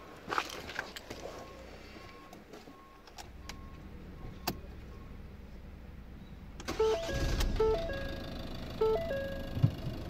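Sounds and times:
faint short beeps: 8.8 - 9.6.

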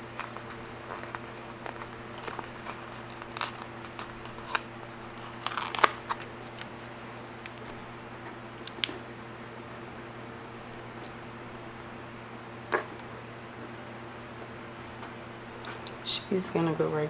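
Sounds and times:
paper crinkling: 0.0 - 8.0.

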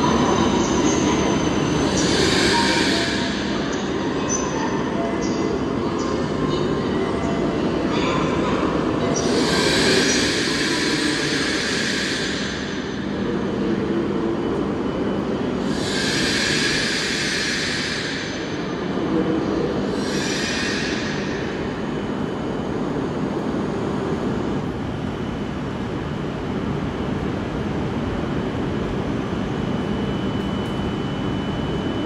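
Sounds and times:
train low rumble: 0.0 - 32.0
high hissing from train: 1.8 - 4.1, 9.2 - 14.0, 15.6 - 19.0, 19.8 - 21.9.

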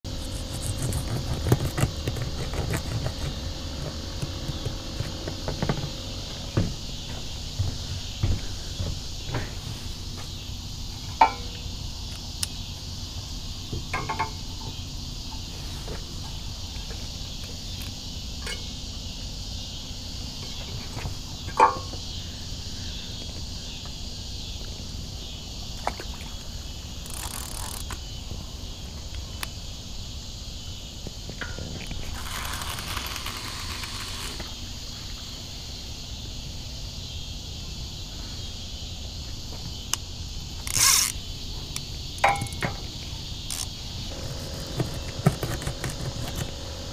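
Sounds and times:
insects chorus: 0.0 - 46.9
fishing rod and reel clicks: 27.0 - 28.0, 32.1 - 34.5, 40.6 - 41.2, 43.5 - 43.7.

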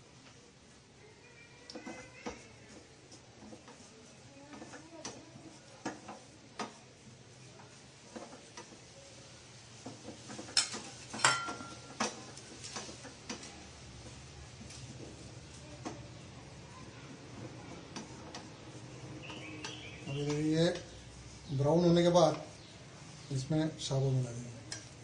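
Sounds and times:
spatula scraping a saucepan: 1.7 - 16.0, 17.4 - 25.0
spatula tapping a pan: 4.5 - 6.9, 9.8 - 15.1, 17.9 - 18.5, 19.3 - 20.9, 24.7 - 25.0
knocks with metallic ring: 11.2 - 11.8.

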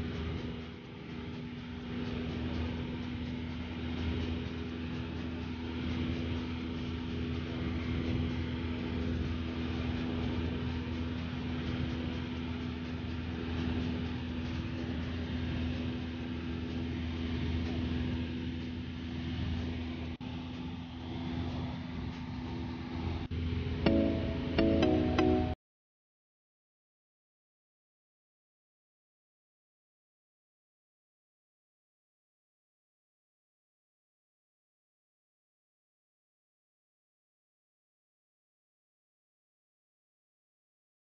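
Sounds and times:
propeller airplane engine droning: 0.0 - 25.6.

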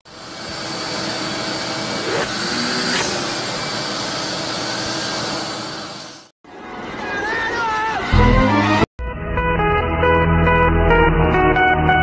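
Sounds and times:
vacuum cleaner running: 0.1 - 6.3.

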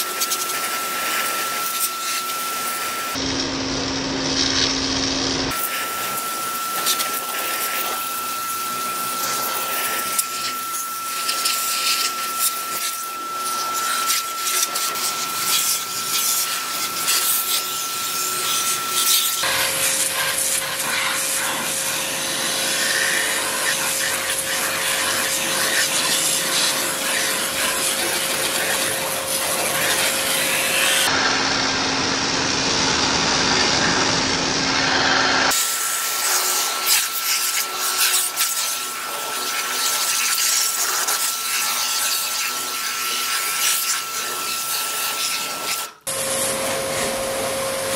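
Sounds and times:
washer motor hum: 0.0 - 47.9
pressure washer spray hissing: 5.5 - 31.1, 35.5 - 47.1.

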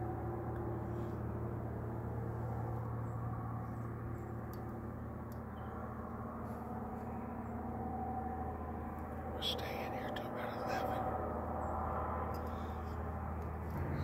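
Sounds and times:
low background rumble: 0.0 - 14.0.

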